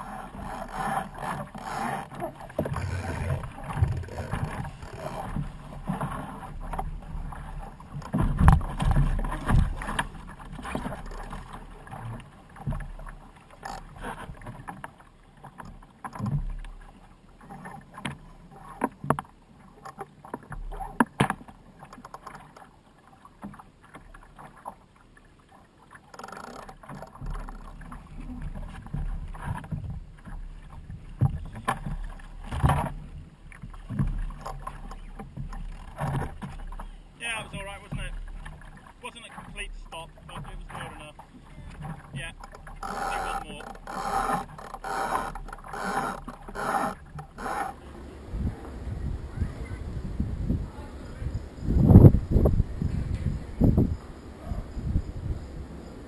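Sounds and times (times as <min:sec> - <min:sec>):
wind rumbling on microphone: 0:00.0 - 0:12.9, 0:35.2 - 0:56.0
water splashing against hull: 0:00.0 - 0:56.0
sharp knocks from boat: 0:00.4 - 0:16.8, 0:17.4 - 0:22.6, 0:25.9 - 0:49.5.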